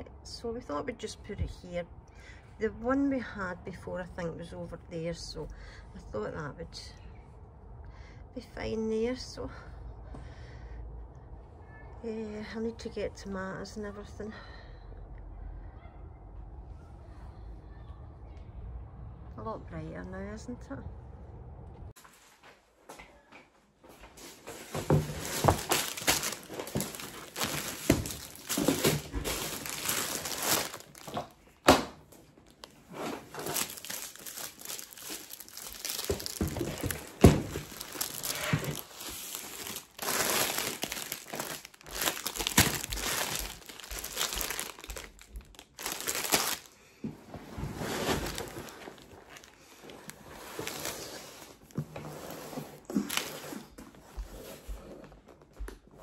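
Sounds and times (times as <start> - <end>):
plastic packaging crinkling: 24.5 - 31.5, 32.4 - 46.8, 47.9 - 51.8
items knocking down: 24.5 - 32.0.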